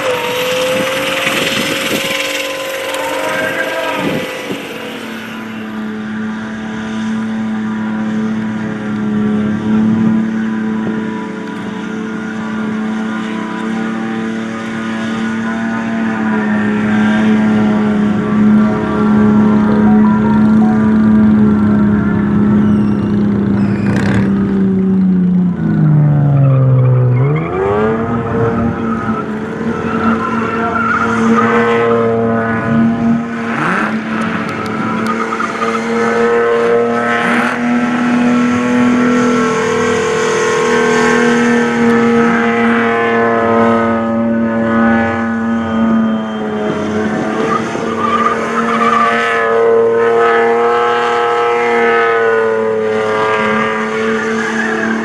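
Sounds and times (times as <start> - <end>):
tyres spinning and squealing: 0.0 - 6.1, 25.6 - 31.7, 33.6 - 36.2, 45.6 - 49.2
car engine revving high: 0.0 - 55.0.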